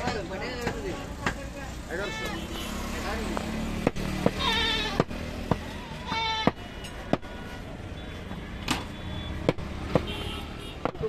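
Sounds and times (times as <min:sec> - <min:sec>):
cleaver chopping meat on wood: 0:00.0 - 0:01.5, 0:03.7 - 0:07.3, 0:08.7 - 0:10.1, 0:10.7 - 0:11.0
goat bleat: 0:04.4 - 0:05.0, 0:05.9 - 0:06.5.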